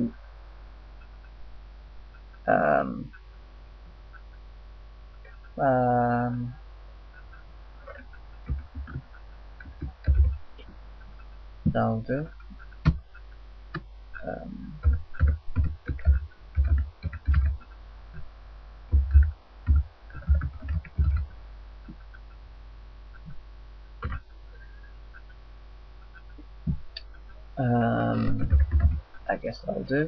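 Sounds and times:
low steady hum: 0.0s - 30.0s
computer keyboard typing: 7.2s - 10.4s, 12.4s - 13.2s, 14.2s - 18.2s, 18.9s - 21.3s, 24.0s - 24.2s, 28.1s - 29.0s.

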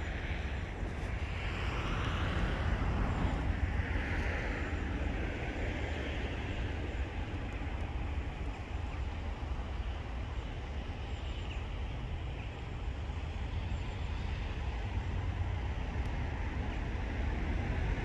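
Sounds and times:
distant vehicle hiss: 0.0s - 7.2s
wind rumble on microphone: 0.0s - 18.0s.

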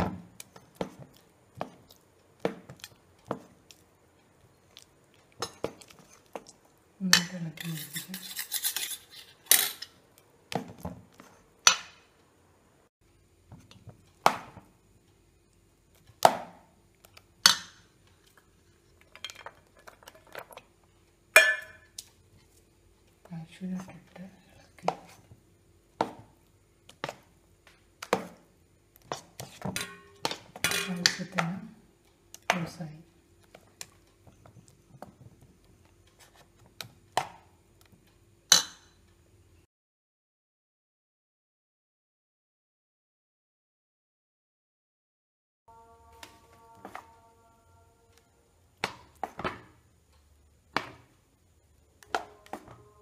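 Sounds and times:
spoon stirring batter in bowl: 0.3s - 11.4s, 23.8s - 25.4s
faint spoon scraping: 7.3s - 10.0s.

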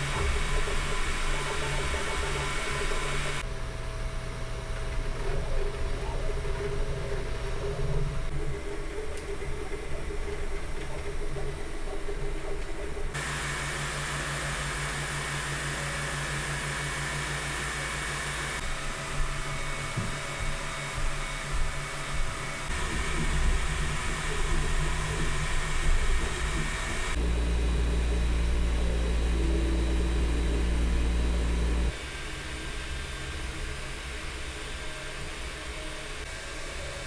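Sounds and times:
stepper motors whining: 0.0s - 3.5s, 5.6s - 37.0s
cooling fans whirring: 0.0s - 37.0s.

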